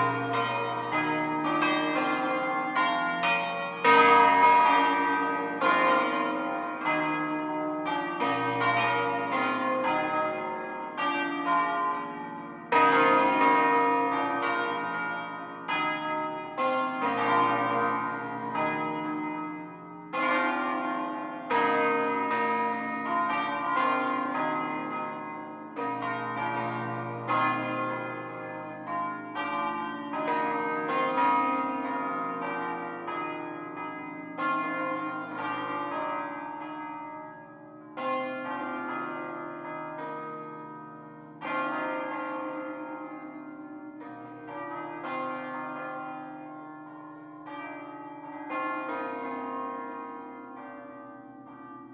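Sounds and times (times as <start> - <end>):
church bells ringing: 0.0 - 51.9.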